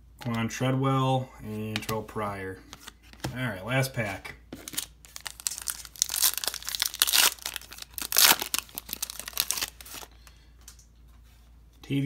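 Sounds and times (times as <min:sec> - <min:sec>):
foil wrapper tearing and crinkling: 0:04.7 - 0:10.1.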